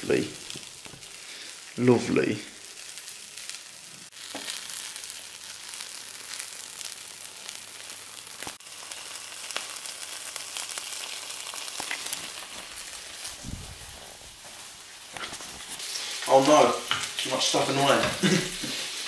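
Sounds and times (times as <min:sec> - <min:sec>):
batter sizzling in oil: 0:00.0 - 0:19.0
oil crackling and popping: 0:00.0 - 0:19.0.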